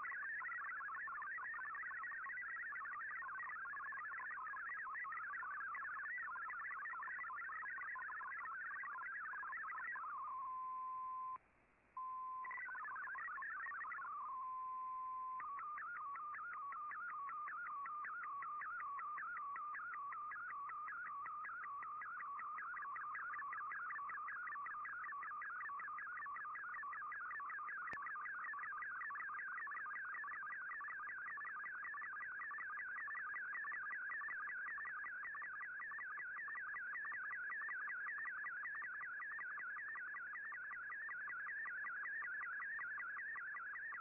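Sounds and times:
warbling digital data tone: 12.2s - 44.0s.

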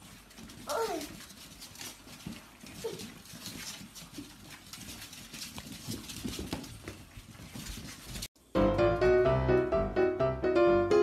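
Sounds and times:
puppy claws pattering on wood: 0.0s - 8.3s.

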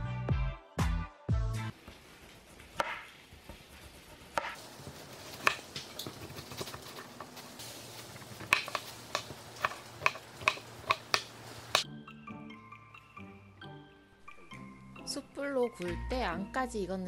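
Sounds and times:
knife tapping cutting board: 5.3s - 7.3s, 8.4s - 11.8s.

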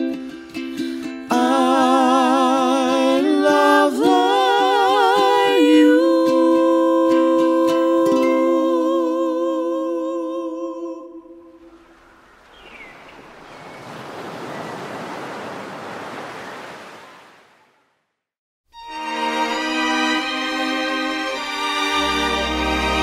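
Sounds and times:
ukulele strums: 0.0s - 9.4s
person singing with vibrato: 0.7s - 11.7s
ocean surf washing: 11.3s - 18.0s.

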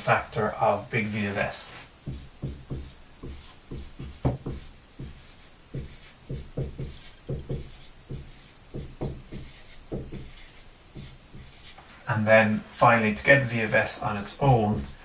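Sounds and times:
marker pen writing on whiteboard: 2.0s - 11.9s, 13.7s - 15.0s.

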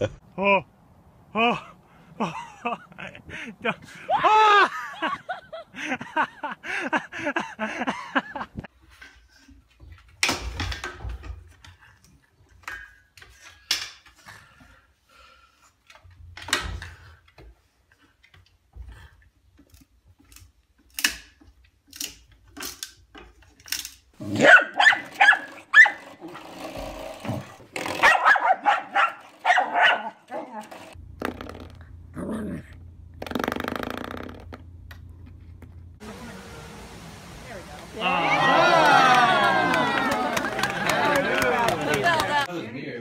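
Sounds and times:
dog barking: 24.4s - 26.0s, 28.0s - 30.5s.

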